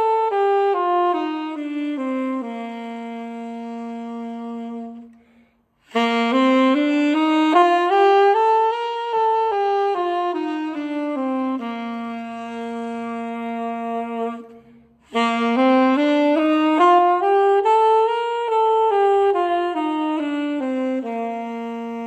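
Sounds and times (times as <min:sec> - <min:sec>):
alto saxophone playing a scale: 0:00.0 - 0:22.0
saxophonist breath: 0:05.1 - 0:05.9, 0:14.5 - 0:15.1.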